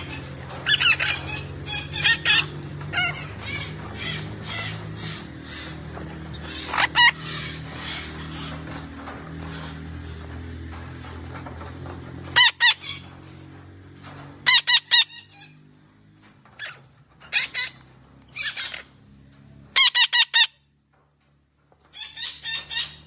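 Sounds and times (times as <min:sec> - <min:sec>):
parakeet shrill squawks: 0:06.5 - 0:08.5, 0:19.8 - 0:20.6.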